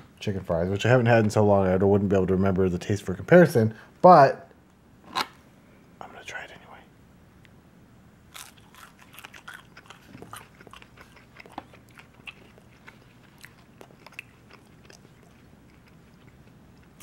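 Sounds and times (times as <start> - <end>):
crunchy food chewing: 8.3 - 17.0.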